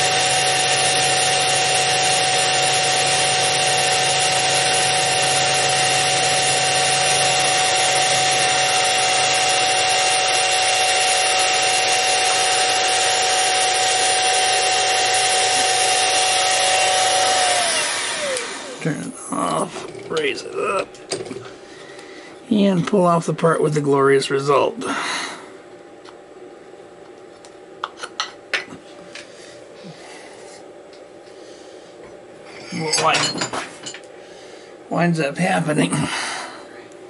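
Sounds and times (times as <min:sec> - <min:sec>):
end mill cutting aluminium: 0:00.0 - 0:19.0
milling spindle whine: 0:00.0 - 0:19.1.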